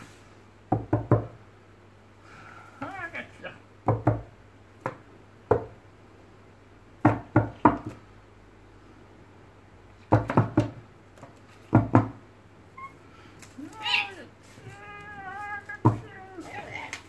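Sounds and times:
knocks on wooden desktop: 10.1 - 12.2.

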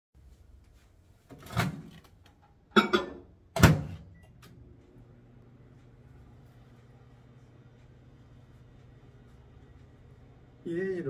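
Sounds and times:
microwave humming: 0.2 - 11.0
microwave door clunks: 2.8 - 4.1.

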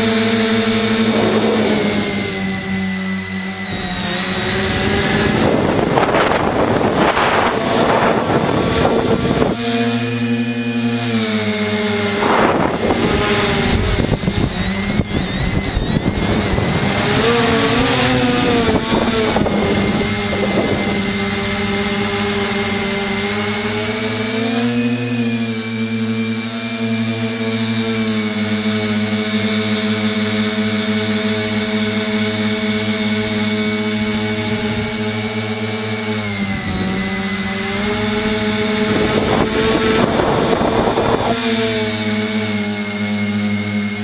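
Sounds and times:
drone motors and propellers whining: 0.0 - 44.0
wind noise: 0.2 - 23.9, 36.1 - 42.8.

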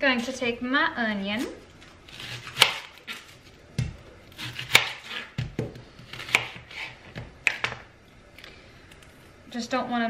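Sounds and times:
knife cutting onion on board: 2.1 - 7.8.

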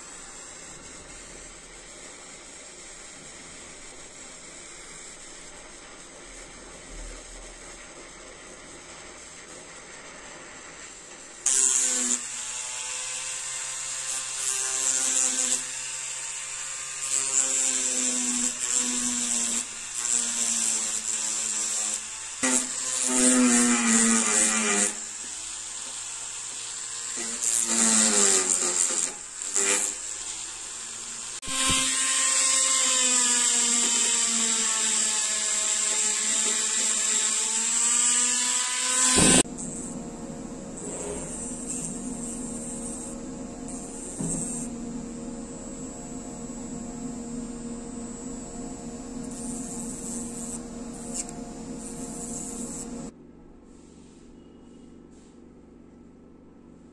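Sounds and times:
rotary tool motor whine: 11.4 - 53.1.

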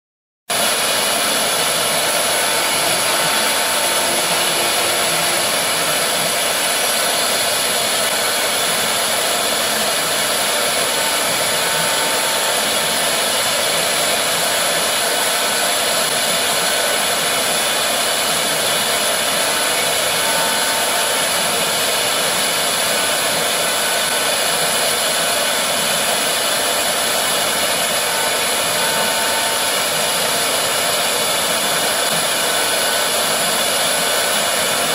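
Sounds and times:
cutting hiss: 0.5 - 34.9
router spindle whining: 0.5 - 34.9.

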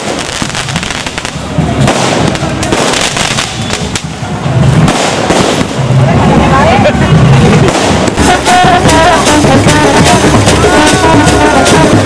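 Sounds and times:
fireworks popping and crackling: 0.0 - 12.0.

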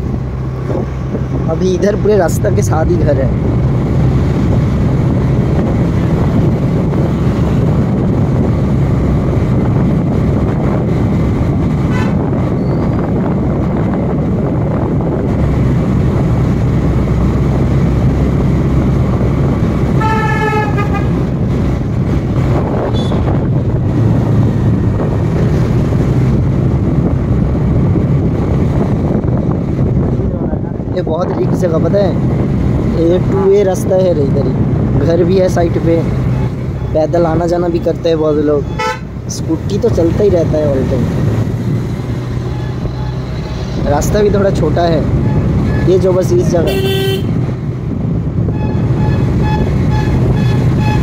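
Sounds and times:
wind and road noise: 0.0 - 51.0
vehicle horn toot: 11.9 - 12.2, 20.0 - 21.2, 22.9 - 23.3, 38.7 - 39.1, 46.6 - 47.4, 48.5 - 51.0.

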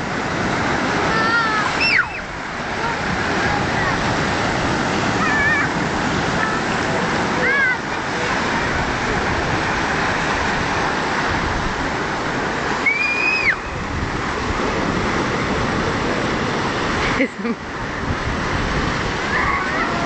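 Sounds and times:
sea surf washing over rocks: 0.0 - 20.0
child shrieking: 1.1 - 2.2, 19.3 - 20.0.

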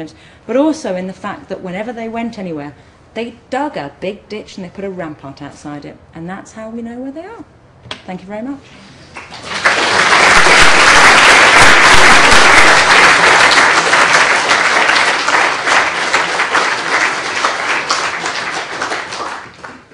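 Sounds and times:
audience applauding: 9.2 - 19.9.

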